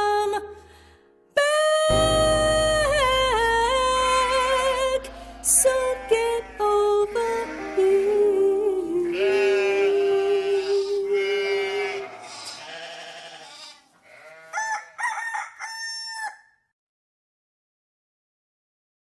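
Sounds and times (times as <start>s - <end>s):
woman singing held note: 1.4s - 12.1s
backing music: 1.9s - 11.2s
sheep bleating: 5.4s - 14.8s.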